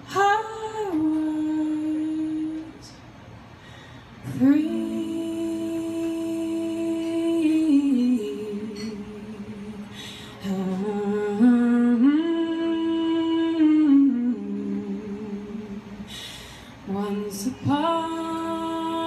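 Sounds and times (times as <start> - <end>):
women singing a cappella harmony: 4.3 - 16.1, 16.9 - 19.0.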